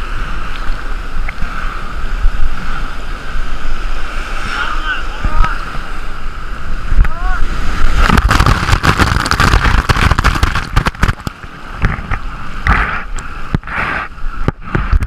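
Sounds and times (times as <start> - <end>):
churning rushing water: 0.0 - 15.0
crackling bubbles: 7.8 - 15.0.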